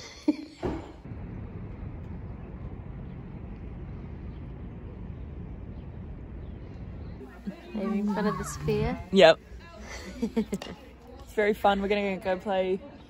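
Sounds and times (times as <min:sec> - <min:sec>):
low ambient rumble: 0:01.0 - 0:10.5.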